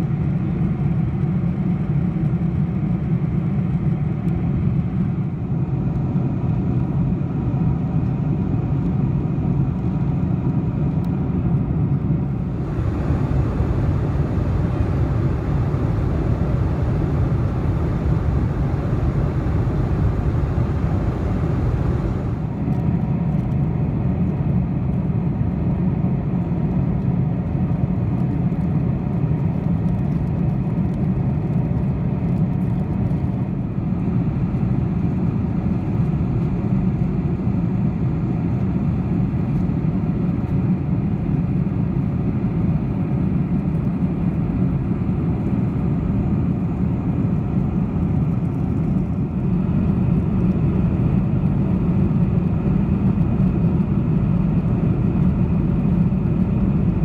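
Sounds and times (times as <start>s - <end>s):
jet engines low roar: 0.0s - 57.0s
airflow hiss: 12.4s - 22.7s.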